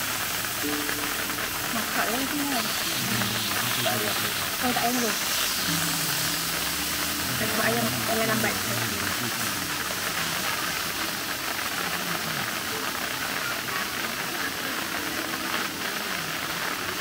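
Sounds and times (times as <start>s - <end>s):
running water rushing: 0.0s - 17.0s
faint voices: 0.6s - 17.0s.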